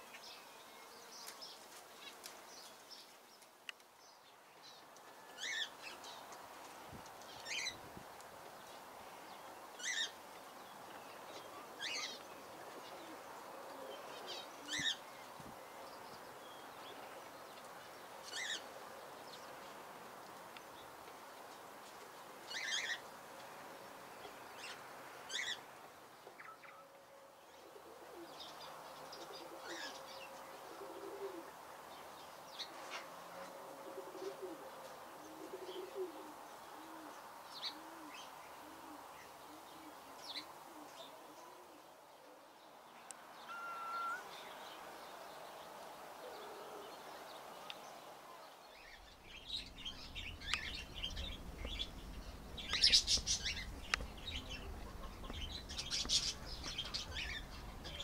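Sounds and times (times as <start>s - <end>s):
faint outdoor background: 0.0s - 58.0s
low bird cooing: 11.3s - 16.0s, 27.6s - 31.6s, 33.4s - 42.0s, 46.2s - 47.4s, 49.3s - 58.0s
short sharp bird calls: 43.4s - 44.6s.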